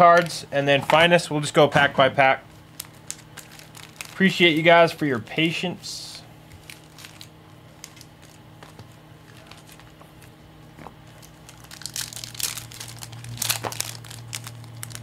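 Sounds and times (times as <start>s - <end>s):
foil wrappers tearing and crinkling: 2.7s - 4.8s, 6.5s - 10.3s, 11.0s - 15.0s.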